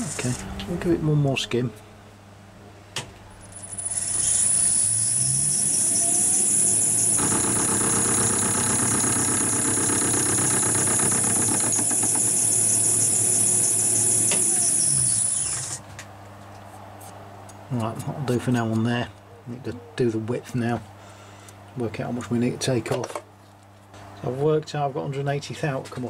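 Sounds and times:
lathe tool cutting with clatter: 3.6s - 15.8s
metal lathe whining: 3.6s - 15.8s.

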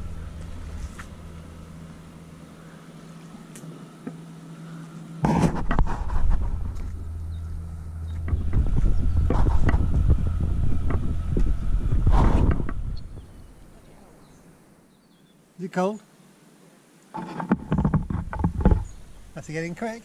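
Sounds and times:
steady low hum: 0.0s - 20.0s
wind buffeting microphone: 5.3s - 14.5s.

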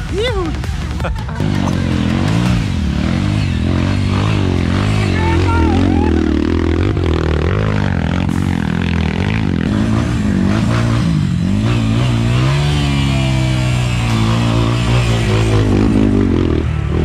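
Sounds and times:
dirt bike engine revving: 0.7s - 17.0s.

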